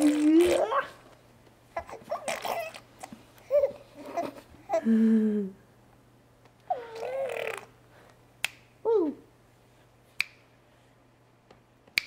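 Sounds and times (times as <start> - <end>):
baby vocalizing: 1.8 - 2.9, 6.7 - 7.8.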